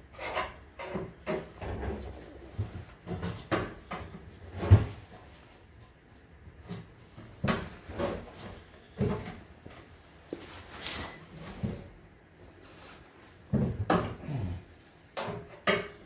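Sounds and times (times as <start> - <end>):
tools and exhaust parts clunking: 0.0 - 10.4, 15.1 - 16.0.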